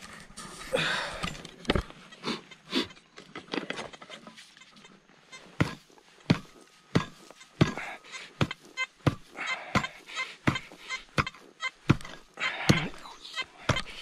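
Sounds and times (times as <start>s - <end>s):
digging tool striking stony ground: 5.6s - 14.0s.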